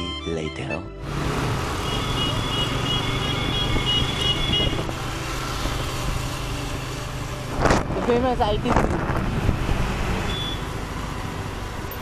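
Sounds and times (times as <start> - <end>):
road and wind noise: 1.0 - 12.0
scooter engine hum: 1.1 - 12.0
high electronic beeps: 10.3 - 10.7.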